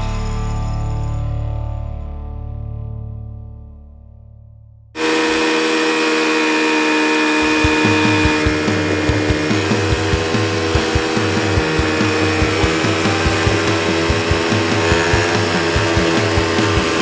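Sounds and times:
music: 0.0 - 5.0, 7.6 - 17.0
atv engine running: 5.0 - 17.0
low thumps: 7.6 - 17.0.

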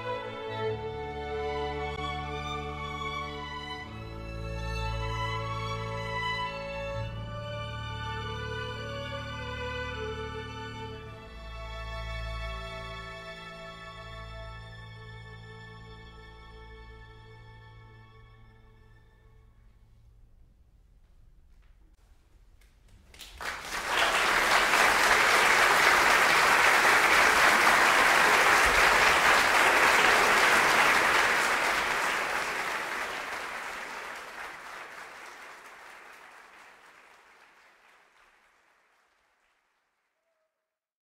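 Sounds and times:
audience applauding: 23.0 - 40.3.

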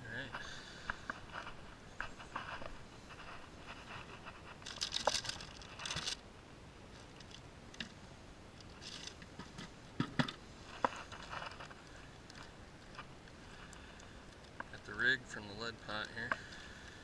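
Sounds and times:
rummaging through fishing tackle: 1.1 - 6.2, 8.6 - 14.9
plastic bag rustling: 2.2 - 6.2, 8.7 - 9.2.

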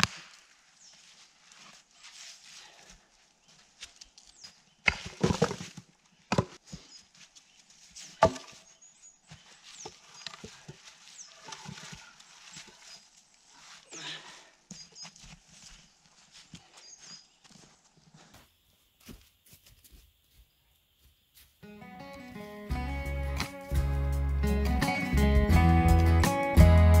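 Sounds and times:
scuffing and crunching in snow: 0.1 - 4.7, 6.8 - 14.1, 14.8 - 20.4
wooden logs knocking together: 4.8 - 6.8, 8.1 - 8.7.

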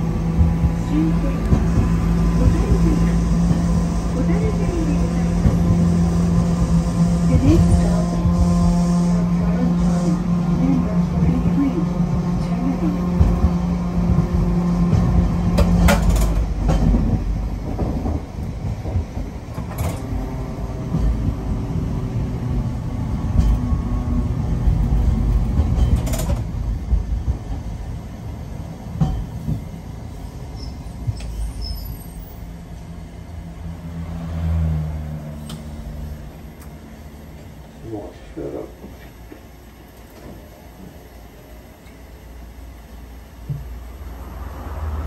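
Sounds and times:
tram wheels rumbling on rail: 0.0 - 45.0
clacks over rail joints: 12.1 - 20.2, 23.2 - 23.9, 24.6 - 27.7.

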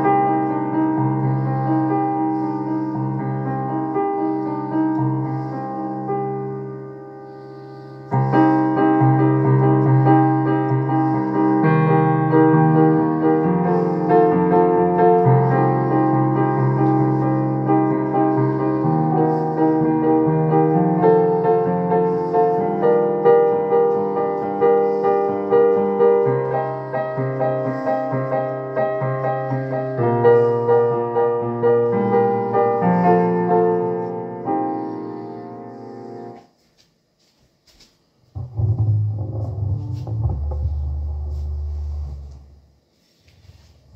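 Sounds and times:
digital piano chords: 38.4 - 42.7.

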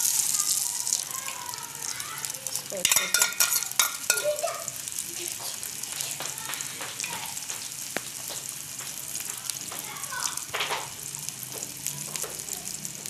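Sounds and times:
eggs sizzling in oil: 0.0 - 13.0
metal spoon scraping a pan: 2.5 - 4.3.

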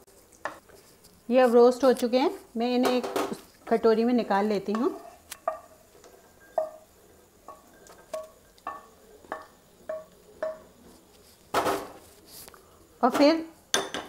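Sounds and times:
spatula knocking nuts in a pan: 4.6 - 5.8, 6.5 - 10.8.

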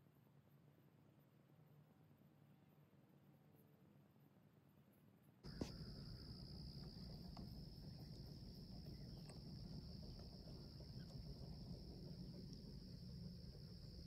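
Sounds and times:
crickets trilling: 5.5 - 14.0
low rumble: 5.5 - 14.0.

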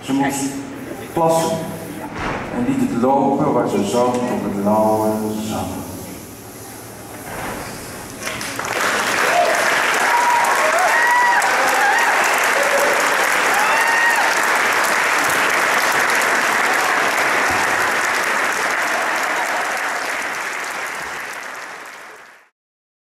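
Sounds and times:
audience applauding: 8.2 - 22.5
voices over clapping: 8.6 - 22.3.

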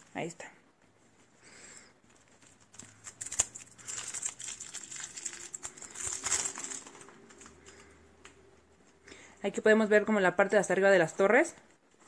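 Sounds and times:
plastic shrink-wrap crinkling: 2.0 - 8.0.

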